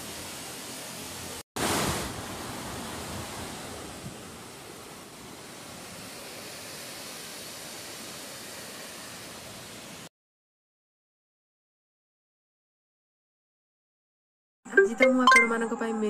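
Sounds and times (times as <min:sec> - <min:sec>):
waterfall pouring over rocks: 0:04.7 - 0:10.1.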